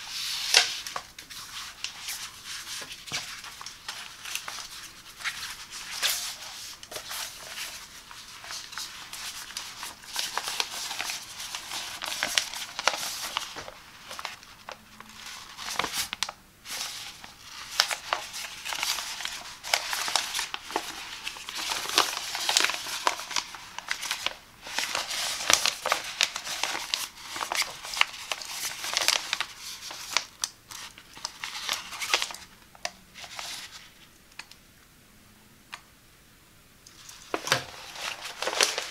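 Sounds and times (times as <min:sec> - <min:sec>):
plastic sheet crinkling: 0:00.0 - 0:34.5, 0:36.9 - 0:38.9.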